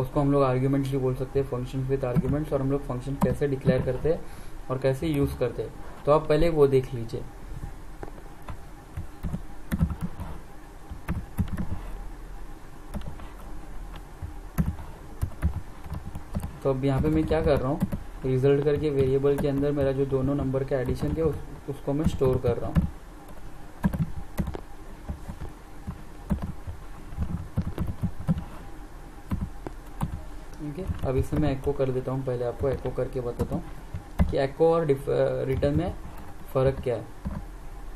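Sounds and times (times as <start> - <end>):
low steady hum: 0.0 - 37.9
typing on computer keyboard: 8.4 - 11.9, 12.9 - 18.0, 18.6 - 21.4, 22.0 - 28.6, 29.3 - 31.8, 32.5 - 34.4.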